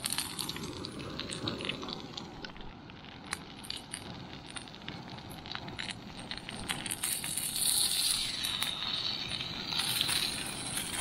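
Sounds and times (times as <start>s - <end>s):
food sizzling in a frying pan: 7.0s - 11.0s.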